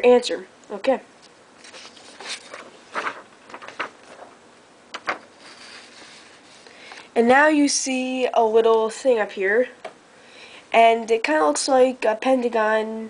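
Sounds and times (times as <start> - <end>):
paper rustling: 1.6 - 6.8.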